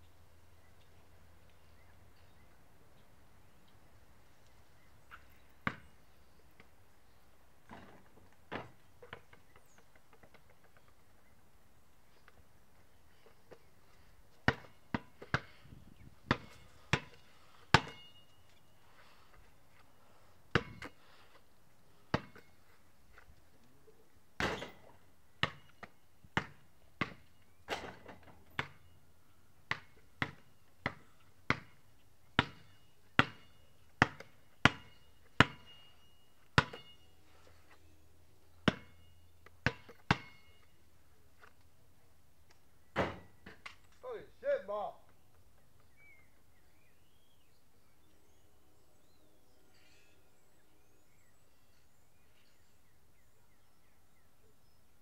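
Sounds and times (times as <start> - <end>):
basketball bouncing on concrete: 5.6 - 5.9, 14.4 - 15.6, 16.2 - 18.2, 20.5 - 20.9, 22.1 - 22.5, 24.4 - 25.8, 26.4 - 28.9, 29.7 - 31.8, 32.4 - 35.8, 36.6 - 37.0, 38.6 - 40.7.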